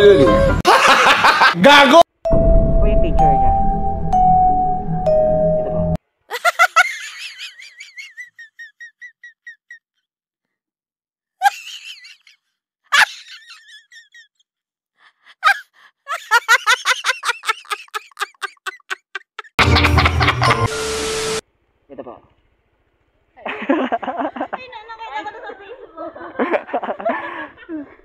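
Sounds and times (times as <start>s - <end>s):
person laughing: 6.3s - 9.9s, 15.3s - 20.7s.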